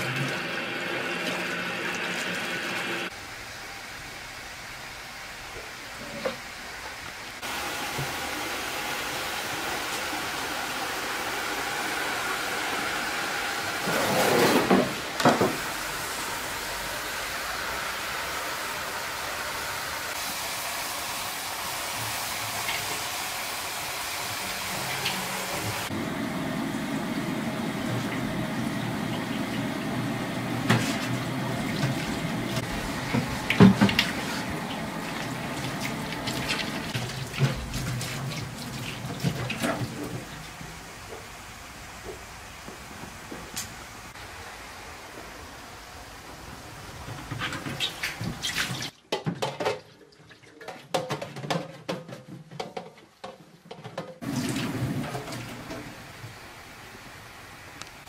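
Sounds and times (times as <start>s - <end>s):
tap water running into sink: 0.0s - 3.1s, 21.8s - 41.3s, 52.7s - 56.4s
metal pots clattering: 49.1s - 55.8s.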